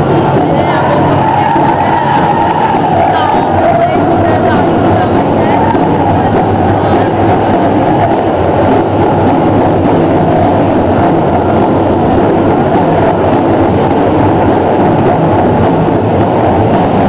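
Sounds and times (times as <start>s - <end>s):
men singing with big drum: 0.0s - 17.0s.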